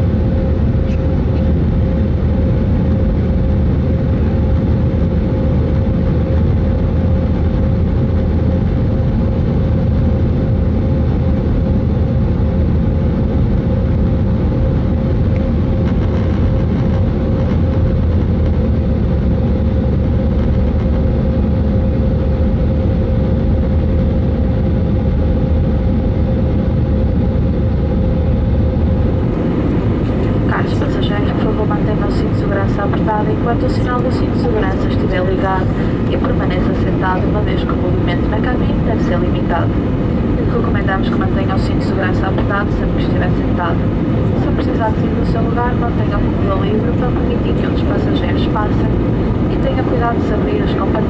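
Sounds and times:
droning hum: 0:00.0 - 0:51.0
jet engines rumbling in cabin: 0:00.0 - 0:51.0.

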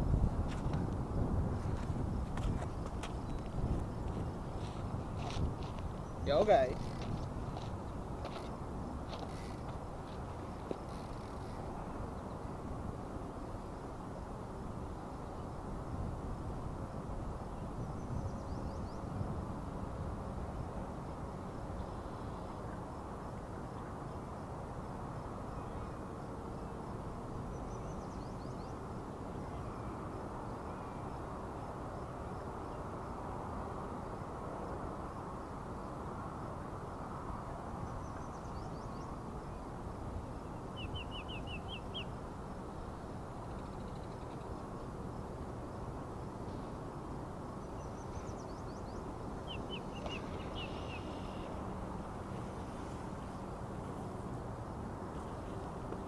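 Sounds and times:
wind on microphone: 0:00.0 - 0:21.8
small birds chirping: 0:40.7 - 0:42.1, 0:47.7 - 0:51.6.

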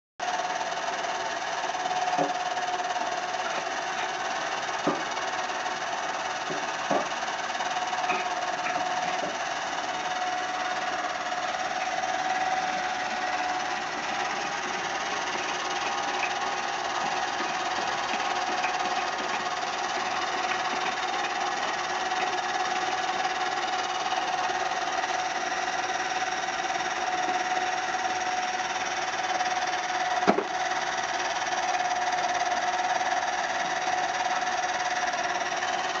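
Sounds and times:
motor driving chain and belt: 0:00.2 - 0:36.0
sharp knocks: 0:04.8 - 0:05.1, 0:06.5 - 0:07.2, 0:30.2 - 0:30.5.

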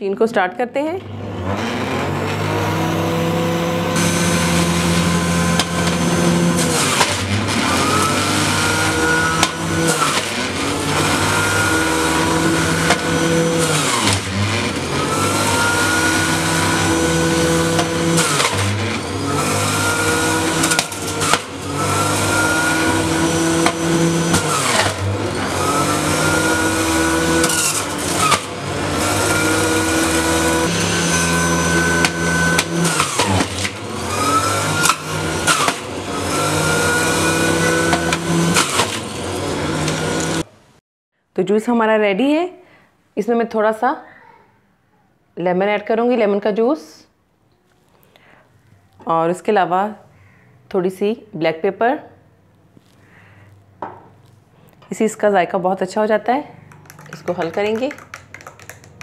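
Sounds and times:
electric juicer motor whining: 0:01.0 - 0:40.5, 0:56.6 - 0:59.0.

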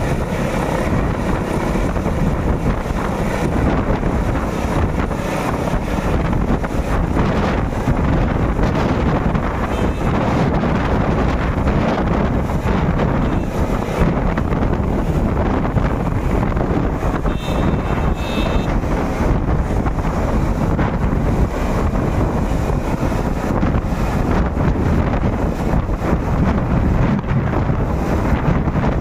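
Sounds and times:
helicopter rotor and turbine: 0:00.0 - 0:29.0
wind buffeting microphone: 0:00.0 - 0:29.0
high thin tone: 0:17.0 - 0:18.8.

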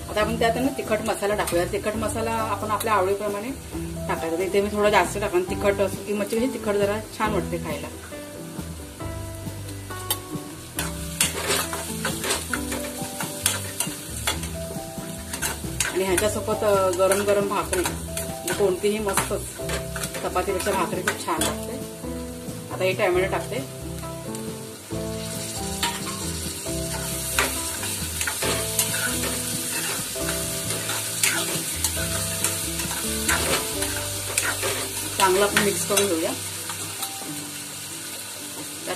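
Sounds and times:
soft background music: 0:00.0 - 0:38.9
spices sizzling in hot oil: 0:00.0 - 0:38.9
spoon scraping metal pan: 0:10.8 - 0:14.6, 0:15.2 - 0:16.4, 0:26.9 - 0:36.2.

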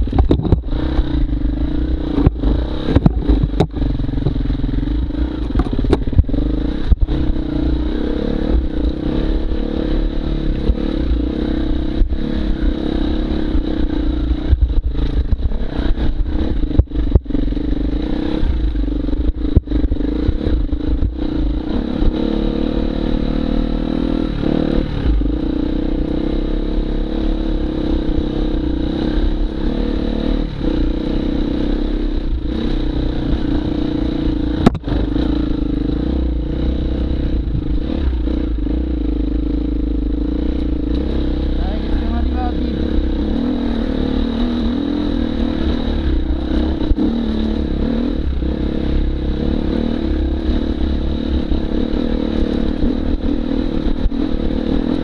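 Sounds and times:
motorcycle knocking and clattering: 0:00.0 - 0:07.5, 0:14.4 - 0:17.9, 0:33.3 - 0:35.9
motorcycle engine revving: 0:00.0 - 0:55.0.

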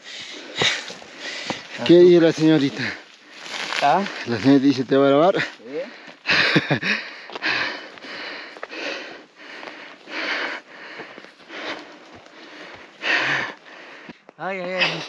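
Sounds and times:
person breathing hard: 0:00.0 - 0:01.9, 0:05.4 - 0:14.3.

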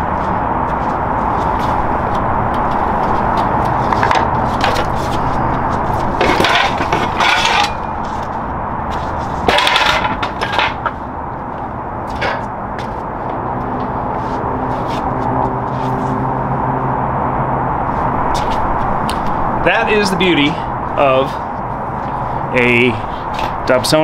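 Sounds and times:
metal hand truck clattering: 0:06.2 - 0:08.0, 0:09.5 - 0:10.9.

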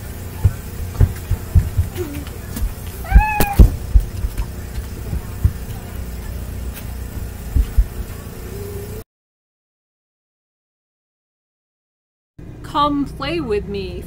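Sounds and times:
paws and footsteps thumping on floor: 0:00.4 - 0:05.9, 0:07.2 - 0:08.1
dog whining: 0:03.0 - 0:03.7.

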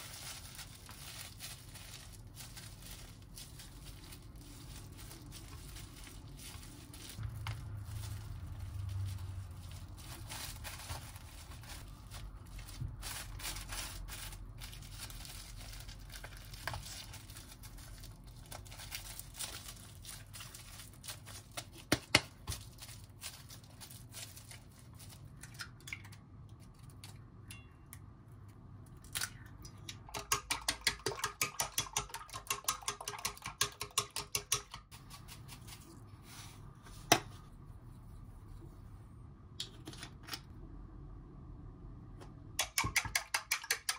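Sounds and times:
cling film crinkling: 0:00.0 - 0:25.4
chopsticks beating egg in pot: 0:30.0 - 0:35.4, 0:42.6 - 0:43.9.

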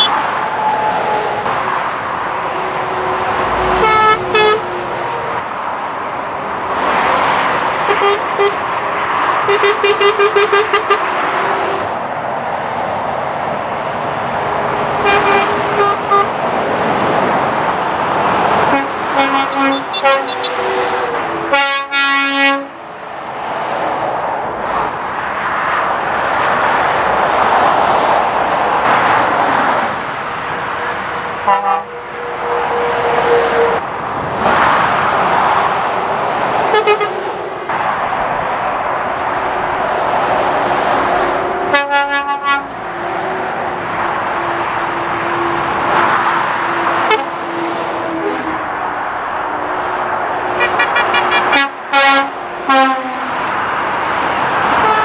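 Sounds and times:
vehicle horns tooting: 0:00.0 - 0:00.2, 0:02.5 - 0:05.3, 0:07.8 - 0:08.6, 0:09.4 - 0:11.9, 0:15.0 - 0:16.3, 0:18.7 - 0:22.8, 0:31.4 - 0:33.8, 0:36.7 - 0:37.4, 0:41.7 - 0:42.7, 0:46.7 - 0:48.7, 0:50.6 - 0:53.4, 0:54.7 - 0:55.0
vehicles passing at speed: 0:00.0 - 0:55.0.

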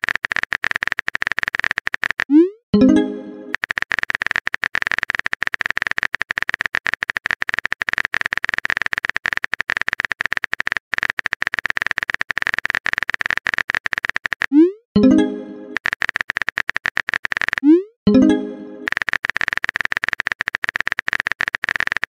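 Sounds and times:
keyboard typing clicks: 0:00.0 - 0:22.0
message chime: 0:02.8 - 0:03.5, 0:15.0 - 0:15.8, 0:18.1 - 0:18.9.

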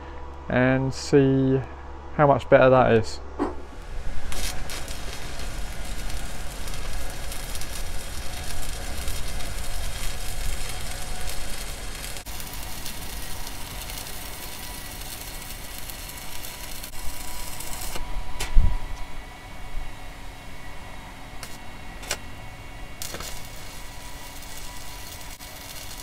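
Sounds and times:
sharp thump: 0:03.4 - 0:03.7
welding arc crackling: 0:03.7 - 0:18.1, 0:21.4 - 0:26.0.

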